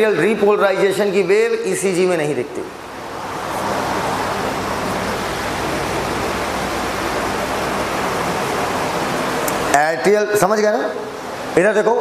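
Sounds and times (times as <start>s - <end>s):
steady rushing noise: 2.4s - 11.7s.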